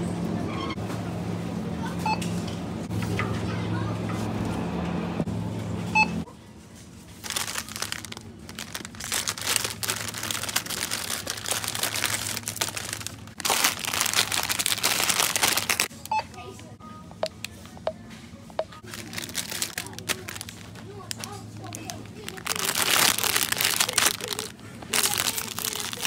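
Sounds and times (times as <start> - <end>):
plastic packets crinkling: 7.2 - 16.1, 18.8 - 26.0.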